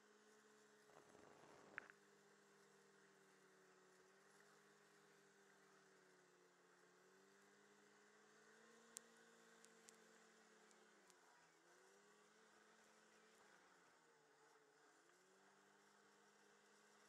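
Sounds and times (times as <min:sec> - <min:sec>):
muffled snowmobile engine hum: 0:00.0 - 0:17.0
small clicks: 0:00.9 - 0:02.0, 0:08.7 - 0:11.3.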